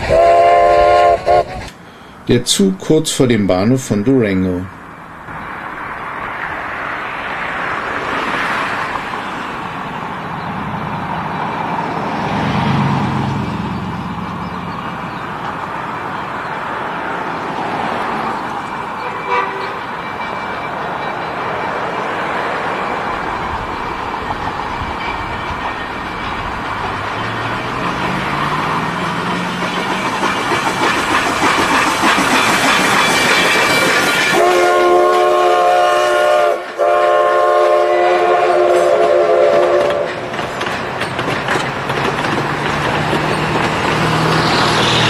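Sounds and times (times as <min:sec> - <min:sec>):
steam locomotive whistle: 0:00.0 - 0:01.8, 0:19.0 - 0:19.9, 0:32.9 - 0:40.2
moving train noise: 0:00.0 - 0:45.0.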